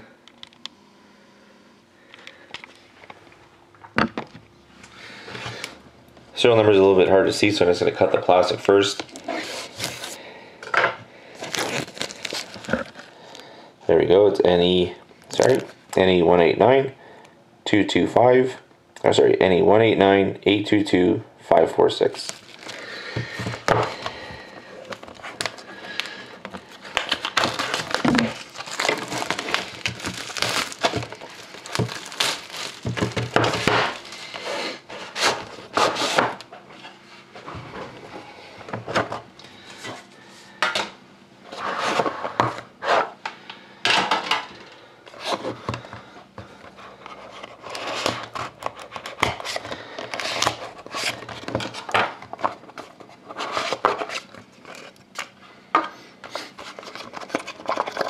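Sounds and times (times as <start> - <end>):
plastic shrink-wrap crinkling and tearing: 8.8 - 10.2, 11.4 - 13.5, 15.1 - 16.0, 22.1 - 36.2, 47.6 - 52.7, 56.5 - 58.0.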